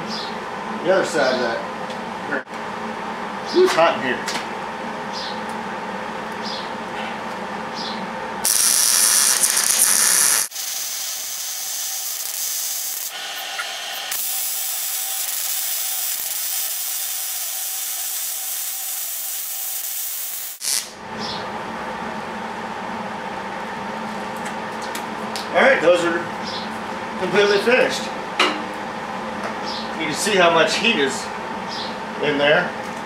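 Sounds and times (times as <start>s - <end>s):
welder arc hissing: 8.4s - 21.0s.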